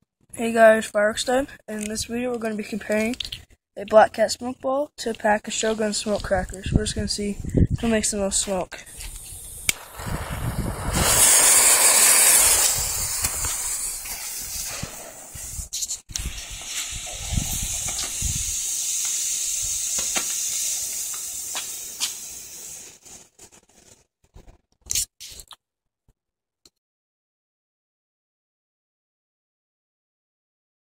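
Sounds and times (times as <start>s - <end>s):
torch lighter hissing: 8.9s - 23.2s
smoke ball hissing: 8.9s - 24.0s.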